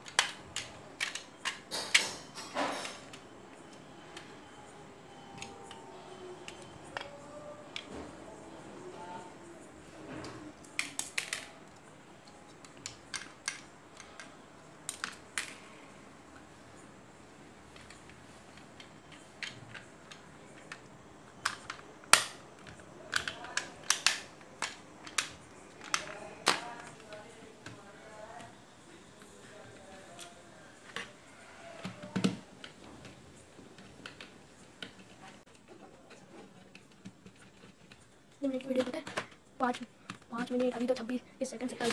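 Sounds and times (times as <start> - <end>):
plastic toy parts clicking: 0.0 - 3.3, 10.6 - 15.7, 17.7 - 27.8.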